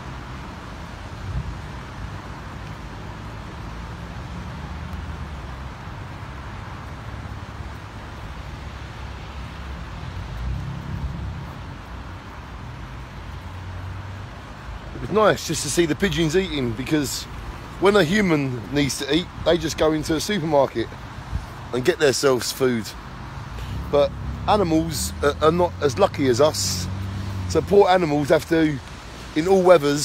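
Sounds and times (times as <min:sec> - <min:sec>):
road traffic noise: 0:00.0 - 0:30.0
vehicle passing: 0:00.0 - 0:30.0
wind rumble on microphone: 0:00.2 - 0:15.0.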